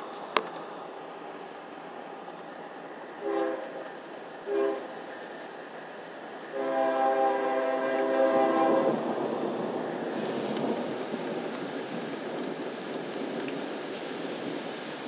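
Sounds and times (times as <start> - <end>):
background hiss: 0.0 - 15.0
train horn blasts: 3.2 - 3.8, 4.5 - 4.9, 6.5 - 9.0.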